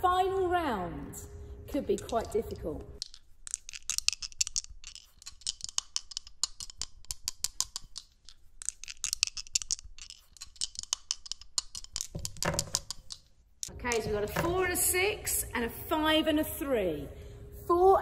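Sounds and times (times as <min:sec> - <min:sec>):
dice rolling clicks and rattles: 0:02.0 - 0:13.3.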